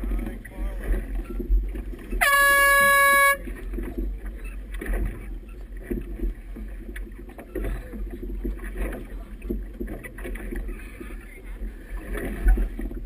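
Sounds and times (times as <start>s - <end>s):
choppy water: 0.0s - 13.0s
horn blast: 2.2s - 3.4s.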